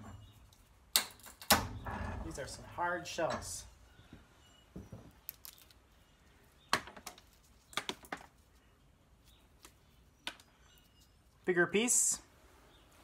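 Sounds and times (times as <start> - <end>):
nut shell cracking and snapping: 5.2 - 5.8.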